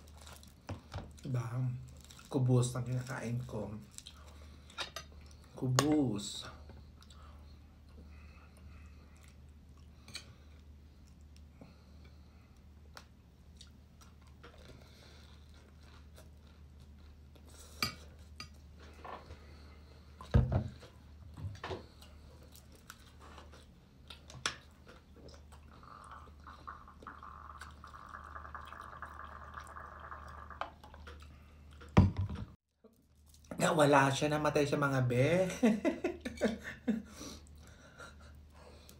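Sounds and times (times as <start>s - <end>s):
chewing: 8.6s - 11.5s, 21.9s - 28.2s
drink pouring from a flask: 26.6s - 31.0s.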